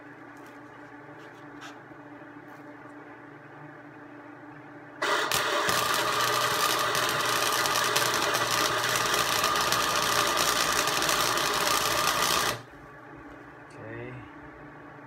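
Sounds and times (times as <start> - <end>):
welding arc crackling and sizzling: 5.0 - 12.7
welder hum: 5.0 - 12.8.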